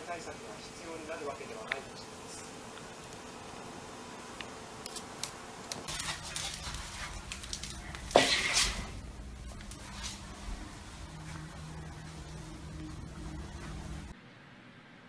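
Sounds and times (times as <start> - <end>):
scuffling and rustling: 5.7 - 14.1.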